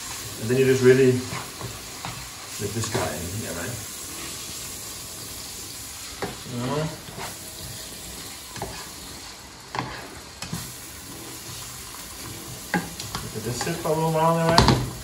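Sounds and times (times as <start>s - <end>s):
vegetables sizzling in frying pan: 0.0s - 15.0s
spatula scraping and knocking pan: 0.7s - 3.2s, 6.1s - 15.0s.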